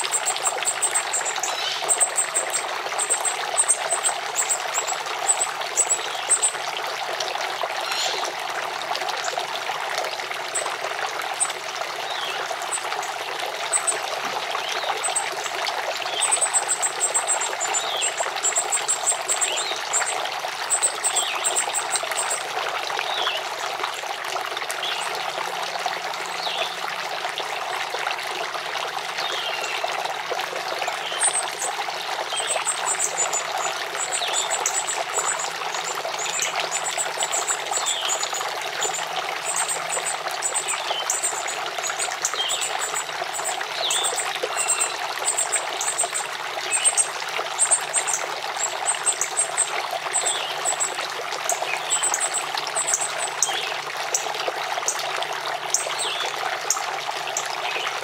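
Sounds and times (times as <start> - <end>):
fountain water trickling: 0.0 - 58.0
bird fledgling begging chirps: 32.4 - 46.1, 51.9 - 53.6.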